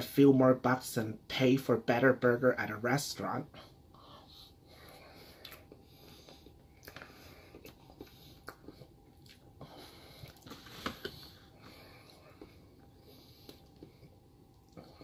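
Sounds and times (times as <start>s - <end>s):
faint chewing and mouth smacks: 4.8s - 15.0s.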